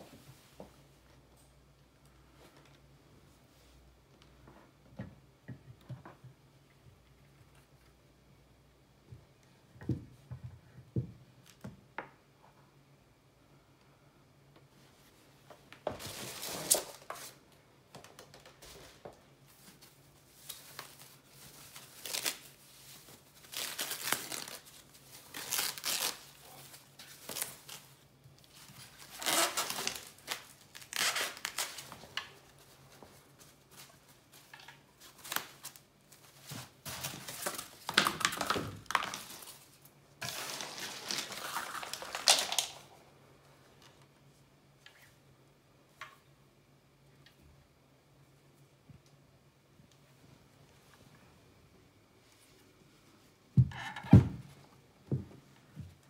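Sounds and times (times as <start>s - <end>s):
plastic and foam wrapping crinkling: 16.0s - 43.0s.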